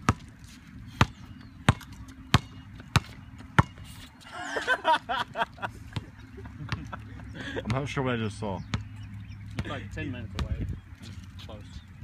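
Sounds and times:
basketball bouncing on court: 0:00.0 - 0:00.3, 0:01.0 - 0:03.8, 0:08.6 - 0:10.7.

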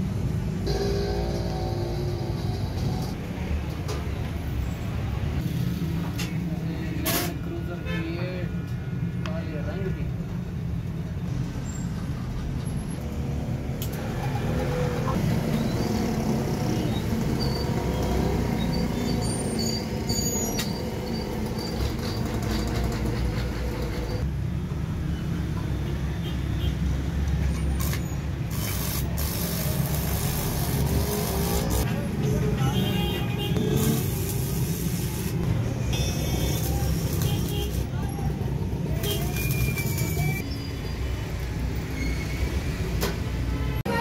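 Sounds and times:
welding arc crackling: 0:27.8 - 0:31.9, 0:33.6 - 0:38.0, 0:38.8 - 0:40.4.

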